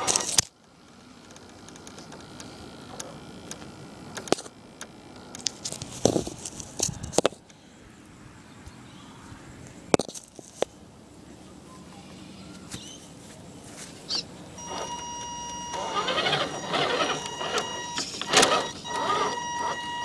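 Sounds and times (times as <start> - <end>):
sharp clicks and knocks: 0.0 - 7.4
toy car motor hum: 14.6 - 20.0.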